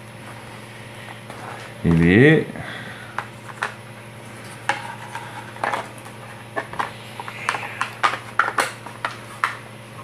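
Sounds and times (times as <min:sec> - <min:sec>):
plastic parts clicking and knocking: 0:07.5 - 0:09.6.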